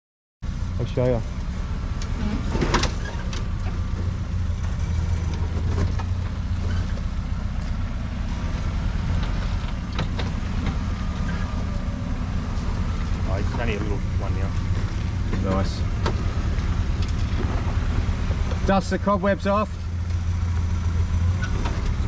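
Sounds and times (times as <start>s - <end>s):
engine running at low revs: 0.4s - 22.0s.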